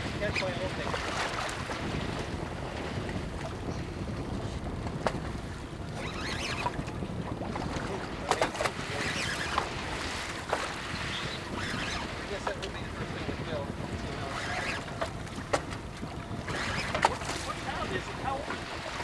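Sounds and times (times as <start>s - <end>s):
sea sounds: 0.0s - 19.0s
wind noise on microphone: 0.0s - 19.0s.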